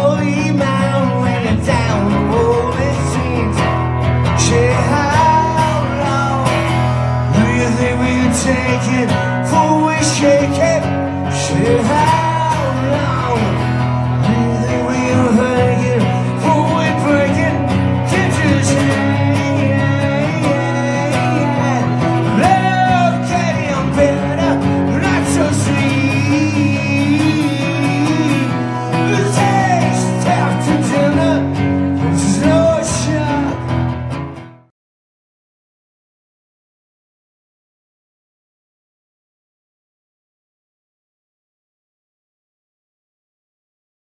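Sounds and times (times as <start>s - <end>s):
man singing: 0.0s - 33.8s
guitar accompaniment: 0.0s - 34.7s.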